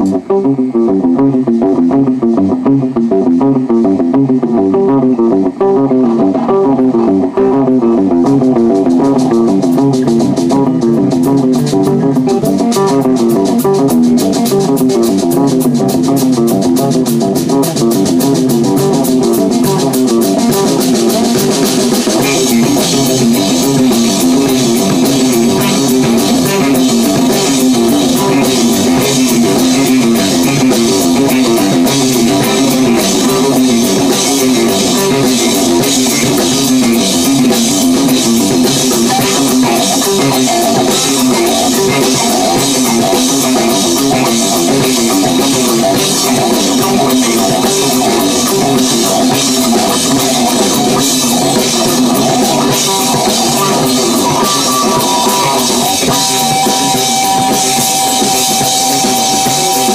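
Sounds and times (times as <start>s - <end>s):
drum kit: 0.0s - 59.9s
electric guitar: 0.0s - 59.9s
live rock band playing: 0.0s - 59.9s.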